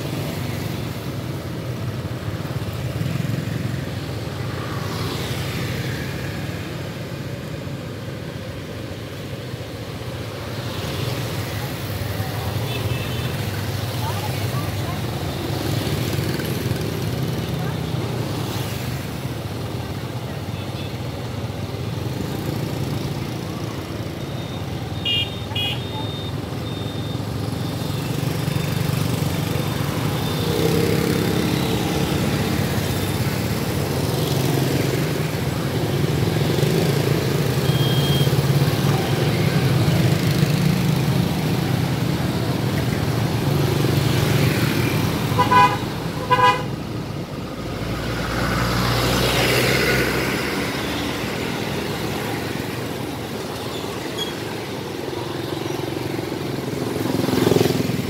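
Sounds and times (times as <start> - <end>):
road traffic: 0.0 - 58.0
car horn toots: 45.4 - 46.7.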